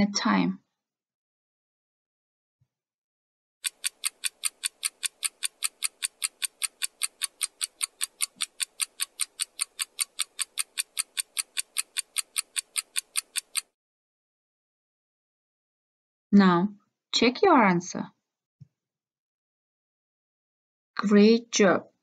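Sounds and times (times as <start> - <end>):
fast clock ticking: 3.6 - 13.7.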